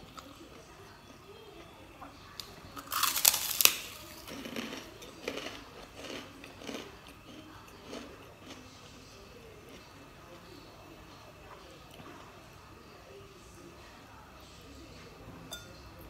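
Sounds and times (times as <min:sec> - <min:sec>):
crunchy chewing: 0:00.0 - 0:10.5
cracker crunching: 0:02.4 - 0:08.6.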